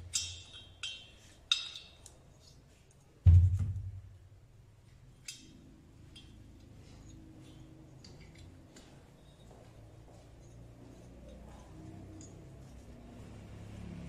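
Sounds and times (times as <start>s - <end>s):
light metallic clinks: 0.0s - 3.0s, 5.2s - 13.3s.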